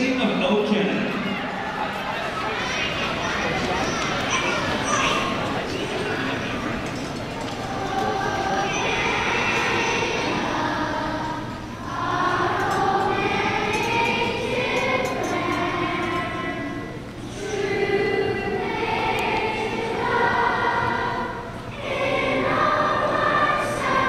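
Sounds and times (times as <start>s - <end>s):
choir singing: 1.6s - 24.0s.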